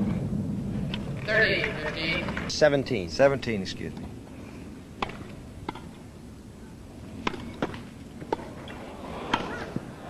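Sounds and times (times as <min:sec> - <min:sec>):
tennis ball struck by rackets: 0:05.0 - 0:05.9, 0:07.2 - 0:09.8.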